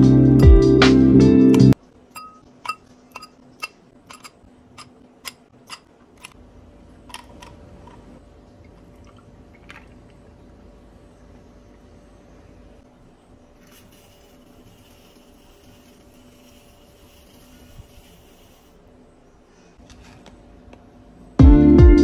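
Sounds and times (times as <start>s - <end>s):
milk pouring: 8.6s - 10.7s.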